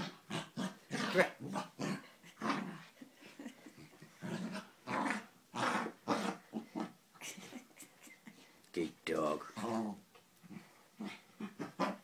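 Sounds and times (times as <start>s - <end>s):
dog growling: 0.0s - 3.0s, 4.0s - 7.0s, 9.4s - 12.0s.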